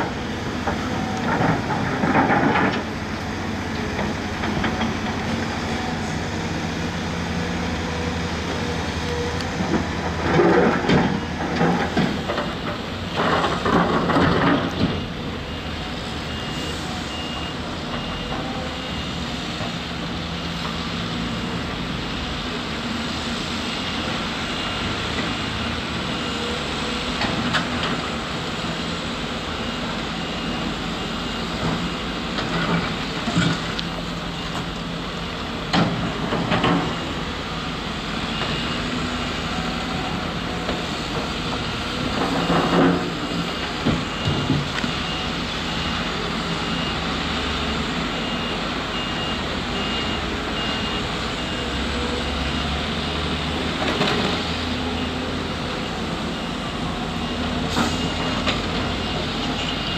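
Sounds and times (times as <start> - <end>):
diesel construction machinery running: 0.0 - 59.9
reversing alarm beeping: 3.6 - 21.6, 23.2 - 59.9.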